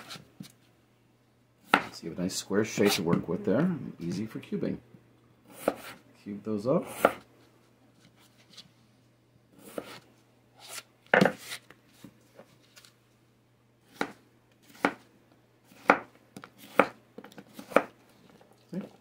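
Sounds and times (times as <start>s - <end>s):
knife chopping on cutting board: 1.7s - 2.0s, 5.5s - 6.0s, 6.8s - 7.2s, 9.6s - 10.0s, 13.9s - 15.0s, 15.7s - 18.0s.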